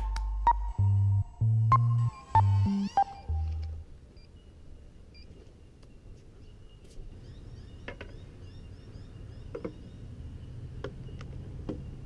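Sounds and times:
low rumble: 0.0 - 3.8
short high chirps: 0.0 - 3.8
sharp clicks: 1.7 - 3.8.

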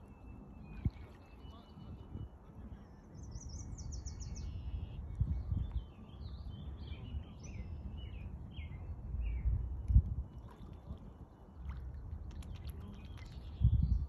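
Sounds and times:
songbird trilling and chirping: 2.8 - 9.5.

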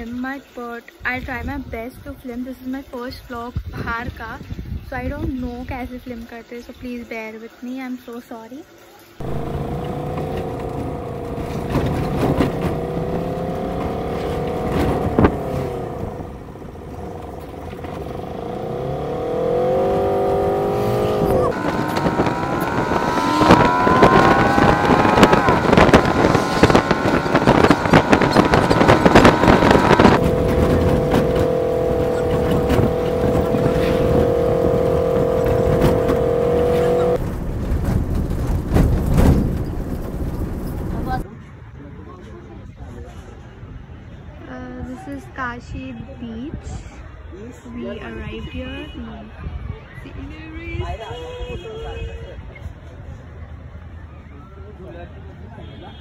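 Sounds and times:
road and wind noise: 0.0 - 7.0, 9.2 - 56.0
knocks and rattles: 9.2 - 19.0, 23.6 - 41.2
vehicle engine whine: 9.2 - 41.3.

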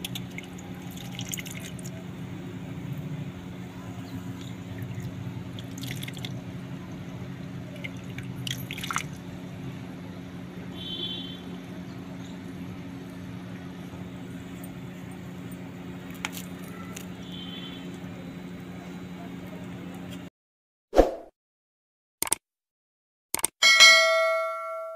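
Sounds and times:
sharp wet crackles and clicks: 0.0 - 2.0, 4.3 - 6.4, 16.0 - 17.1.

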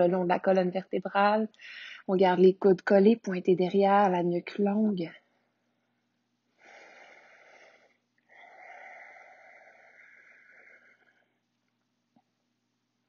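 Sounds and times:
faint breathing: 1.6 - 2.1, 5.2 - 11.5.

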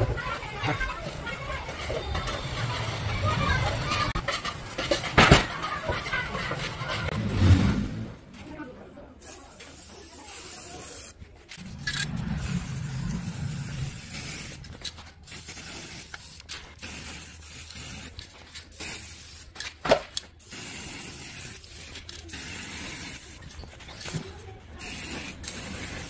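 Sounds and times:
aerosol spray can hissing: 9.2 - 11.1, 12.4 - 19.6, 20.4 - 23.4, 24.8 - 26.0.

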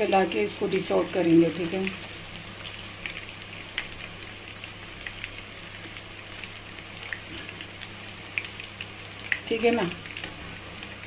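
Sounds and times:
fish deep-frying in oil: 0.0 - 11.0
oil popping and crackling: 0.0 - 11.0.

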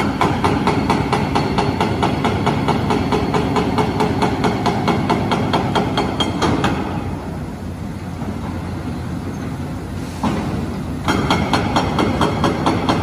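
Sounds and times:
hydraulic hammer pounding rock: 0.0 - 7.4, 10.2 - 13.0.

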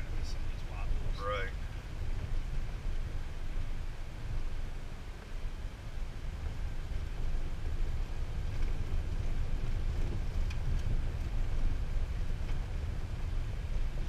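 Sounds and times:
vehicle rumbling on gravel: 0.0 - 14.0
faint ticks: 10.0 - 11.6.

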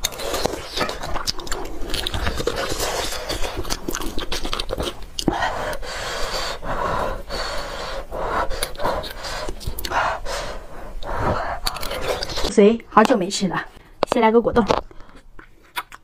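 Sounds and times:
breathy sucking sounds: 5.3 - 12.6.

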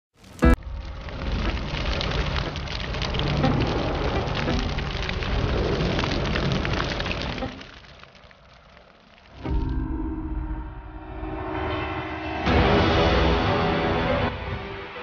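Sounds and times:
fire crackling and sizzling: 0.1 - 15.0.

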